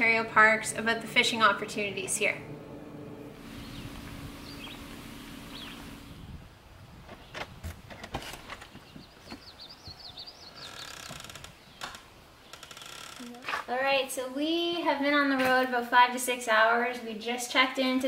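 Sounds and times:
van interior hum: 0.0 - 6.5
songbird chirping: 1.8 - 6.4, 8.5 - 13.0.

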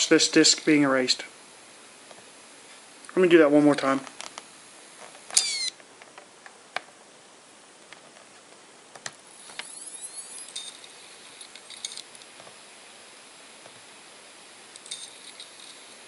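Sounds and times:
hard drive whine: 4.4 - 5.9, 9.0 - 16.0.

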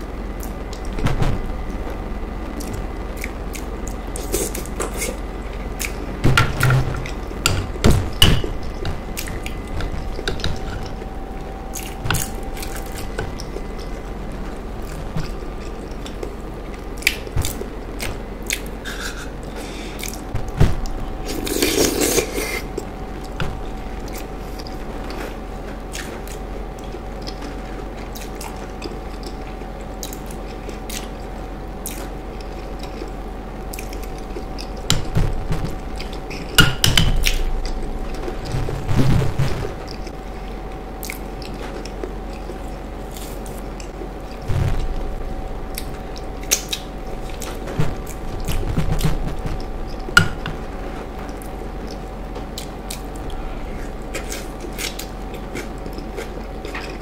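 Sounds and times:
faint steady hum: 0.0 - 57.0
wet chewing with mouth clicks: 53.8 - 57.0.

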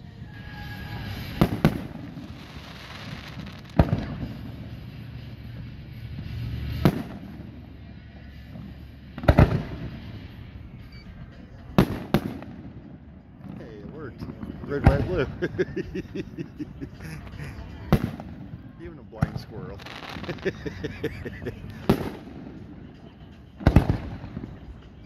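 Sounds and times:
steady low rumble: 0.0 - 25.0
firework shells bursting: 0.4 - 7.6, 19.2 - 24.8.

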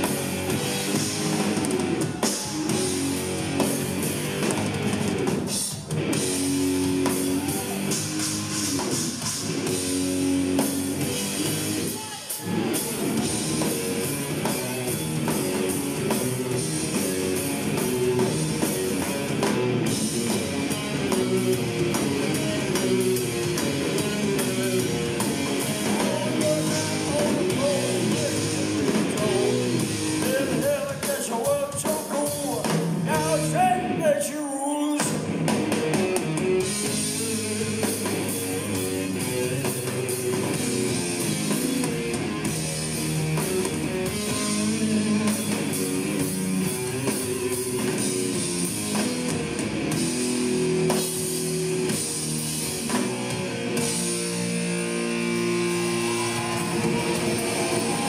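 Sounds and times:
bass guitar: 0.0 - 34.3, 35.0 - 58.0
drum kit: 0.0 - 34.3, 34.9 - 58.0
distorted electric guitars: 0.0 - 58.0
lead guitar bending in pitch: 35.9 - 58.0.

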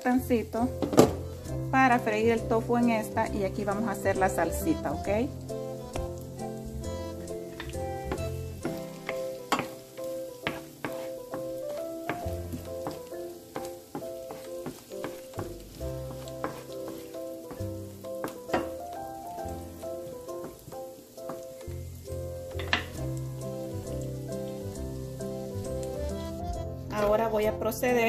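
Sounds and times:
ginger and garlic sizzling in oil: 0.0 - 28.0
background music with bass line: 1.1 - 9.3, 22.1 - 27.2
wooden spatula stirring: 3.6 - 21.6.

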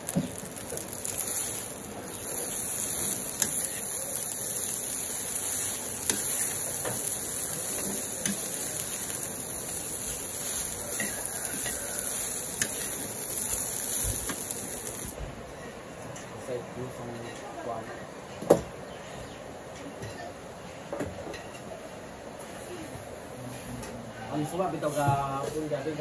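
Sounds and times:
rice sizzling in a wok: 0.0 - 15.2, 24.2 - 26.0.

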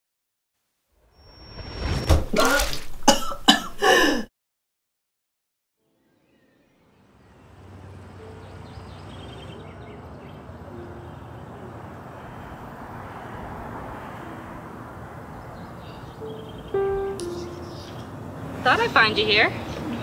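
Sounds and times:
distant traffic: 6.8 - 20.0
faint bird chirps: 15.5 - 18.2.

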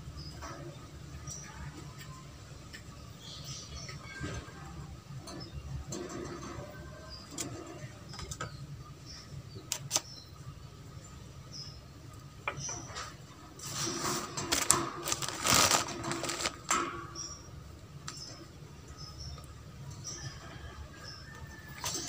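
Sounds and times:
rabbit clicks in wire cage: 5.2 - 8.6, 9.6 - 10.2, 13.9 - 17.4, 21.2 - 22.0
rabbit rustling: 12.7 - 17.4.

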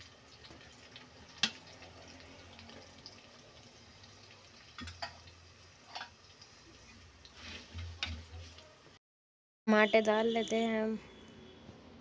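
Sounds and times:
oil and onions sizzling: 0.0 - 9.0.

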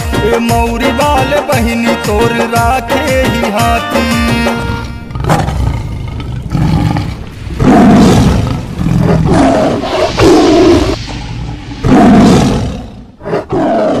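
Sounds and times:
lion growl: 5.1 - 14.0
lion roaring: 5.1 - 14.0.

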